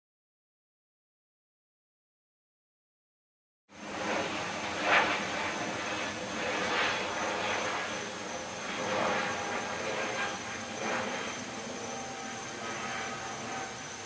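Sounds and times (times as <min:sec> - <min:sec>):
faint high whine: 0:03.7 - 0:14.0.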